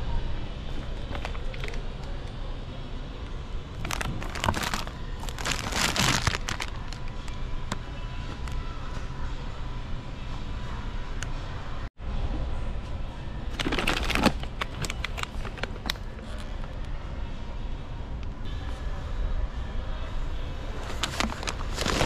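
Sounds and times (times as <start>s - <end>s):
steady background hum: 0.0s - 22.0s
plastic bag crinkling: 3.8s - 7.1s, 13.6s - 16.1s, 20.9s - 22.0s.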